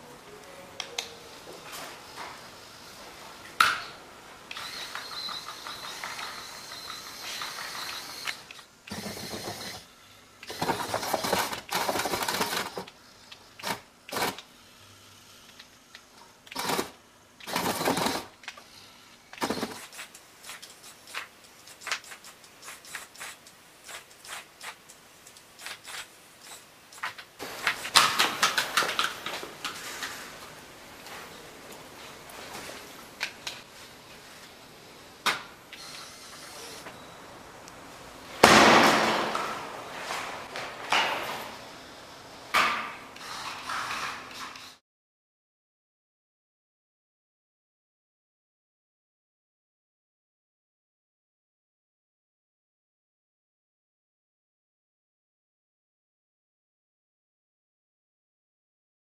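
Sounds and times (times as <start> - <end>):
small electric motors whirring: 4.5 - 27.2, 35.7 - 36.8.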